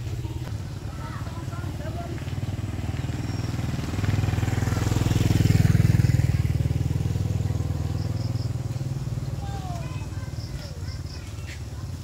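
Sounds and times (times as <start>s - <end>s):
motorbike engine running: 0.0s - 12.0s.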